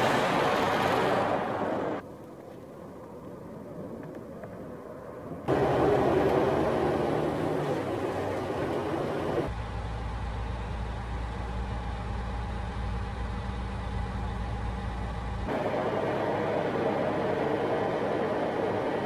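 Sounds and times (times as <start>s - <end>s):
road and wind noise: 0.0s - 19.0s
diesel engine drone: 4.8s - 19.0s.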